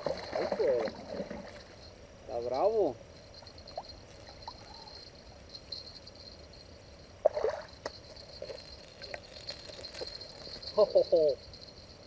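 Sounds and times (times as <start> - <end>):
faint ticks: 7.2 - 10.8.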